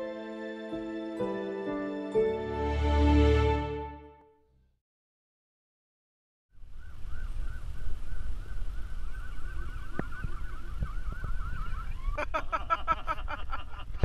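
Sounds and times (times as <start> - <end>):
electronic siren warbling: 9.2 - 12.2.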